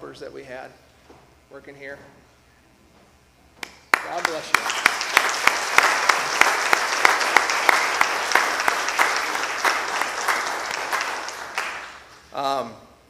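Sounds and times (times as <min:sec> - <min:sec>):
crowd applauding: 0:03.9 - 0:12.3.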